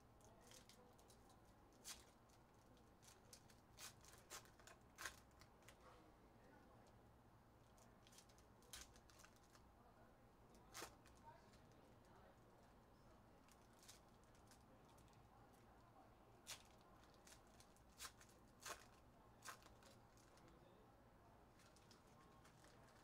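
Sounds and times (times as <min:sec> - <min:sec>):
foil card packs crinkling: 0:00.4 - 0:05.8, 0:16.4 - 0:20.5, 0:21.5 - 0:23.0.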